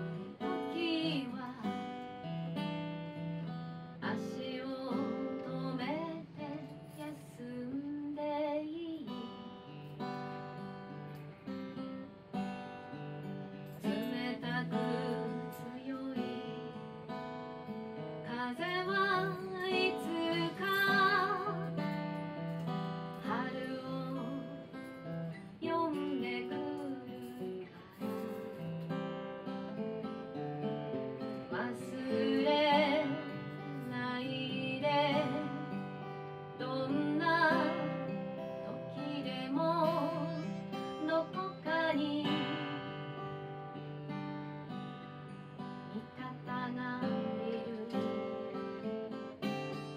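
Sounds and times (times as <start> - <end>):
woman singing: 0.0 - 2.2, 3.9 - 9.7, 13.7 - 17.2, 18.2 - 28.2, 31.2 - 43.4, 45.9 - 49.9
strummed acoustic guitar: 0.0 - 49.9.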